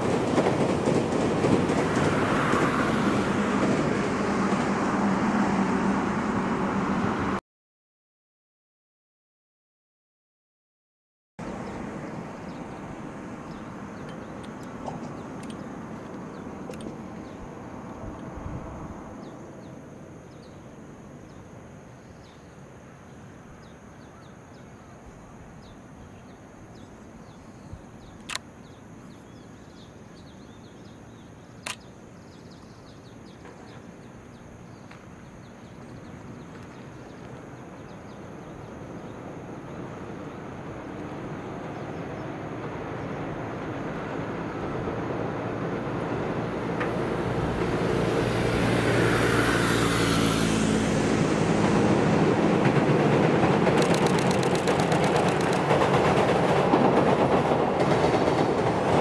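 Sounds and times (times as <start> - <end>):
train approaching: 0.0 - 7.4, 11.4 - 21.8, 22.6 - 59.0
outdoor background rumble: 26.2 - 57.6
sharp clicks: 28.2 - 28.5, 31.6 - 31.9, 53.7 - 56.0.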